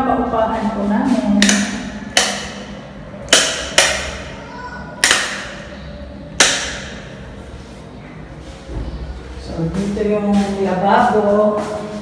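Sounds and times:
sharp knocks echoing in room: 0:01.3 - 0:07.2.

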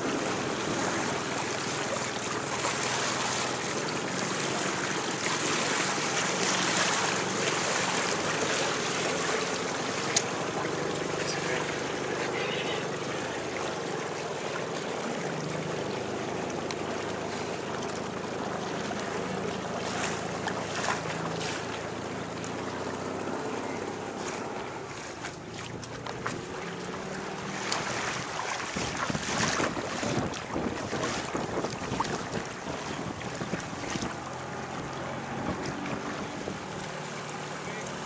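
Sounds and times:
water lapping and splashing: 0:00.0 - 0:38.0
wind buffeting microphone: 0:27.9 - 0:36.8.

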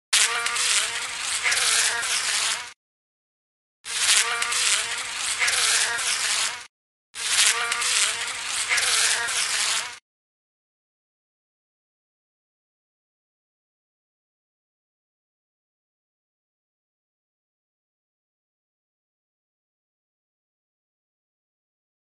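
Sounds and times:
fly buzzing: 0:00.2 - 0:02.8, 0:03.8 - 0:10.0.

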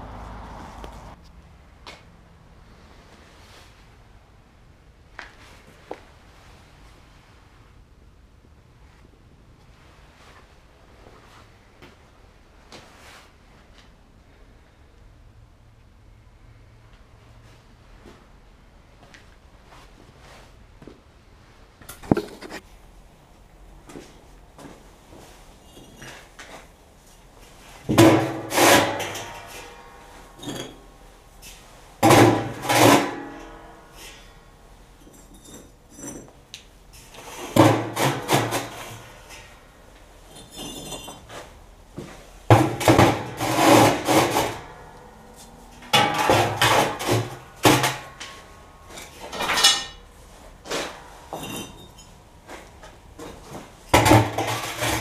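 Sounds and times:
bricks clunking in steel drum: 0:27.9 - 0:29.8, 0:45.8 - 0:50.0, 0:53.9 - 0:55.0.

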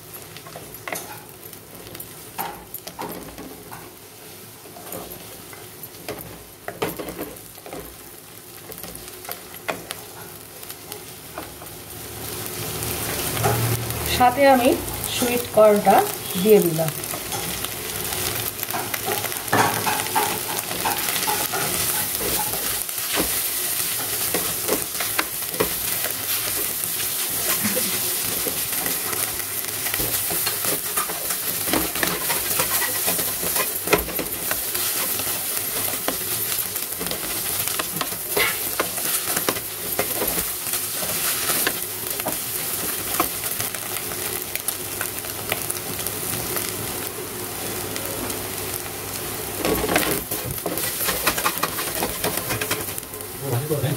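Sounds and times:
food sizzling in hot oil: 0:00.0 - 0:53.9
wooden spatula scraping: 0:19.9 - 0:43.3, 0:49.7 - 0:53.0.

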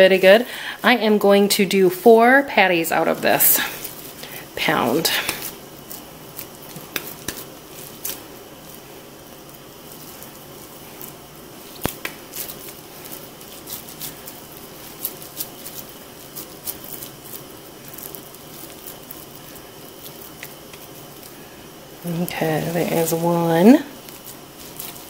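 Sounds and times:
hands squishing raw meat: 0:05.0 - 0:08.9.

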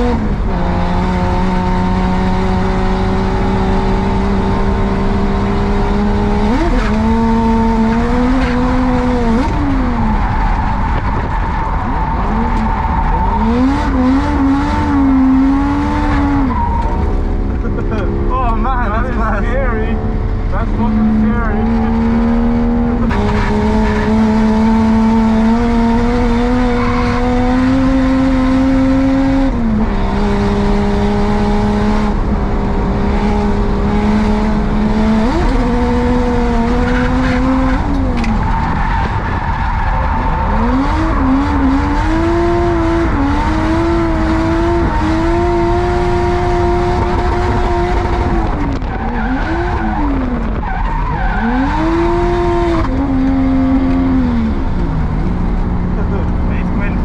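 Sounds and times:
car engine at high revs: 0:00.0 - 0:57.0.

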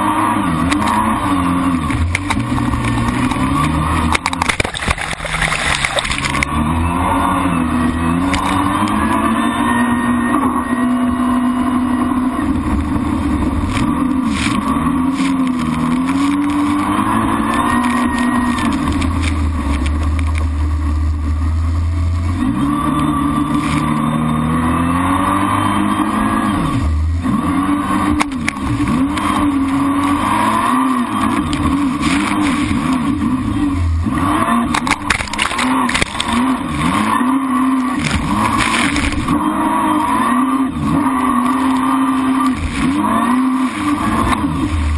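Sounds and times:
jet ski engine: 0:00.0 - 0:44.9
water spray rushing: 0:02.3 - 0:06.7.

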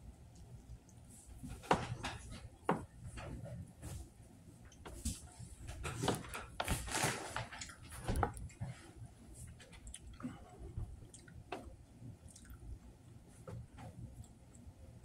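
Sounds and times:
person chewing food: 0:09.4 - 0:14.7.

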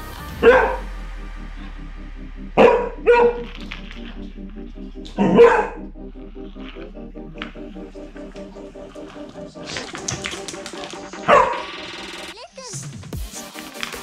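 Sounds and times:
background music with steady beat: 0:00.0 - 0:14.0
dog barking: 0:00.4 - 0:00.8, 0:02.6 - 0:03.7, 0:05.2 - 0:05.8, 0:11.2 - 0:11.7.

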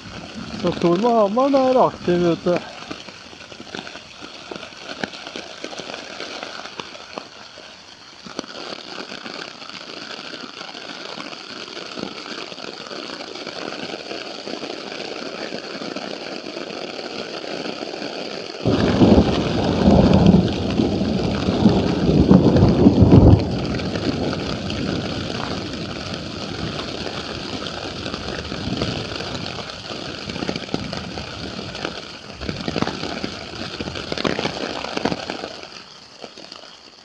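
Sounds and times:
rain pattering on tent: 0:00.0 - 0:37.0
rolling thunder: 0:18.6 - 0:35.2.

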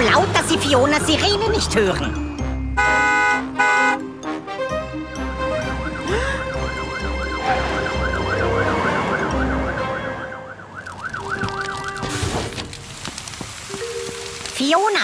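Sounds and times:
background music: 0:00.0 - 0:15.0
cartoon siren wailing: 0:05.7 - 0:12.0
water spraying hiss: 0:12.1 - 0:15.0.

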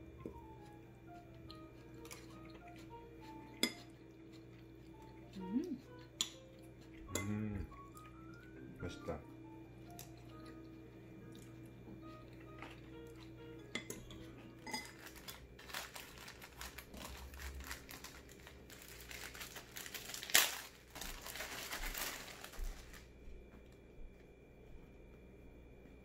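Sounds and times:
soft background music: 0:00.0 - 0:26.0
cutlery clinking on dishes: 0:03.5 - 0:03.9, 0:13.7 - 0:15.0
plastic bag crinkling: 0:14.7 - 0:23.2.

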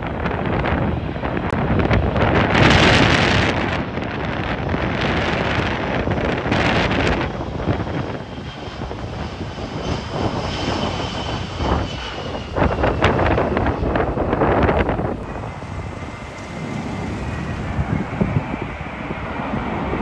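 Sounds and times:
jet engines passing overhead: 0:00.0 - 0:20.0
wind buffeting microphone: 0:00.0 - 0:20.0.

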